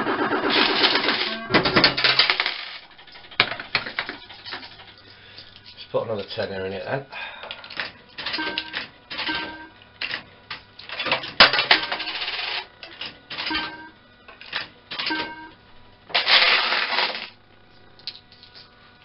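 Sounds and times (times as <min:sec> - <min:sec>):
coins rattling: 0:00.7 - 0:02.8
coins clattering into slot machine: 0:00.8 - 0:02.8, 0:11.0 - 0:12.7, 0:16.2 - 0:17.4
short electronic beep: 0:01.2 - 0:01.7.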